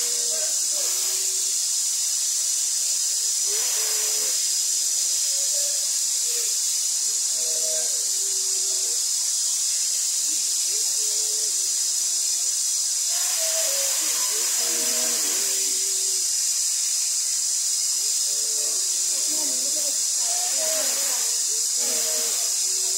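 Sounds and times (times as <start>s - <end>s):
faint singing of held notes: 13.1s - 16.3s, 18.0s - 22.9s.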